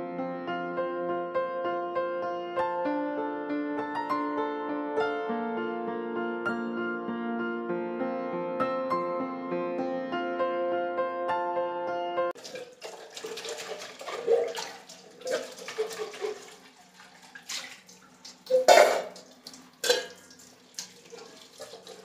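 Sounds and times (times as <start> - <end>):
scrubbing pots: 12.4 - 22.0
tap water running into sink: 12.4 - 22.0
metal utensils clanking: 18.5 - 20.3.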